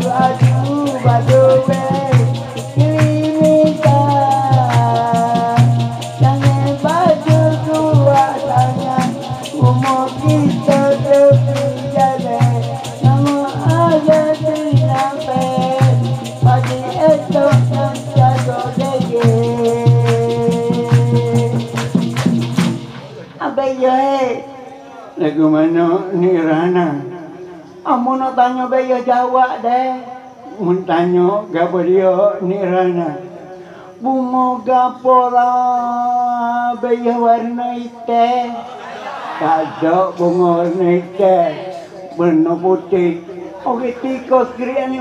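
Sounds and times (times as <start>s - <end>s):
man singing through microphone: 0.0s - 22.2s, 23.3s - 38.8s, 39.4s - 45.0s
steady drum beat: 0.0s - 23.4s
maracas shaking: 0.0s - 23.5s.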